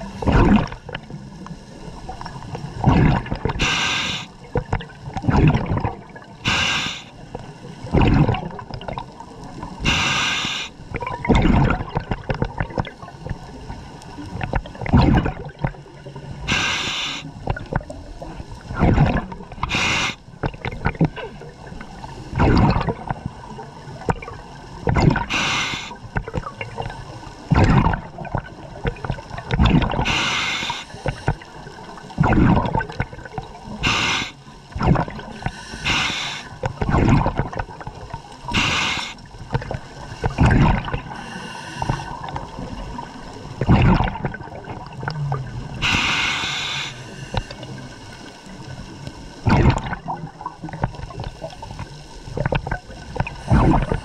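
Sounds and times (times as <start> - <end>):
bubbling exhales: 0.0 - 1.3, 2.1 - 7.1, 7.8 - 9.0, 9.7 - 13.4, 14.4 - 15.8, 16.4 - 18.0, 18.6 - 23.4, 24.0 - 48.6, 49.4 - 54.0
regulator inhale hissing: 3.6 - 4.4, 6.4 - 7.2, 9.8 - 10.8, 16.5 - 17.3, 19.6 - 20.2, 25.3 - 26.0, 30.0 - 31.5, 33.8 - 34.5, 35.3 - 36.6, 38.5 - 39.2, 41.1 - 42.3, 45.8 - 47.8.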